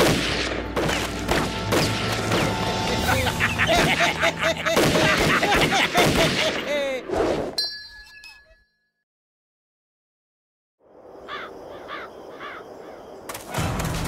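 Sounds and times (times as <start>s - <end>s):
rifle shots in volleys: 0.0s - 2.6s, 4.8s - 6.7s.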